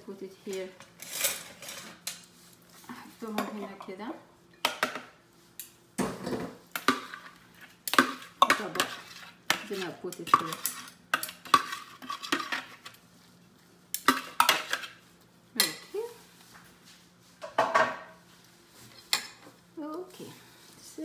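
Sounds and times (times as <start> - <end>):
metal spoon scraping plastic bowl: 8.4 - 13.0.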